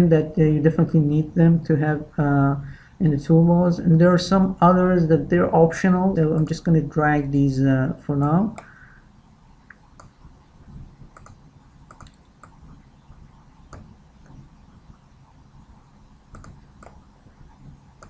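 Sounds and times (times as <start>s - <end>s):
faint low hum: 0.0s - 18.0s
computer mouse clicks: 9.6s - 10.2s, 11.1s - 12.8s, 13.7s - 14.5s, 16.3s - 17.0s.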